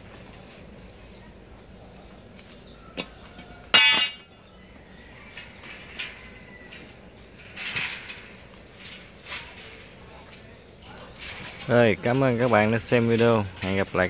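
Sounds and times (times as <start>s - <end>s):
wire mesh rattling: 3.1s - 4.4s, 5.0s - 14.0s
ringing metal clank: 3.7s - 4.4s.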